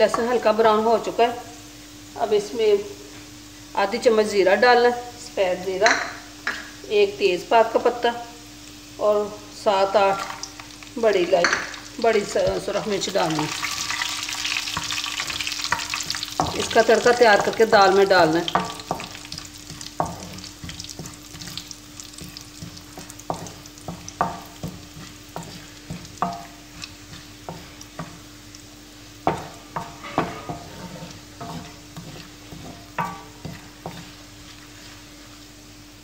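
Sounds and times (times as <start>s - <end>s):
spices sizzling in ghee: 0.0s - 36.0s
wooden spoon scraping pan: 14.7s - 28.3s, 29.2s - 35.2s.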